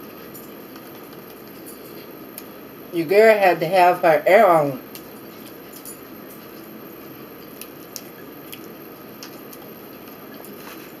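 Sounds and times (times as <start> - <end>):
chewing and biting food: 7.4 - 11.0.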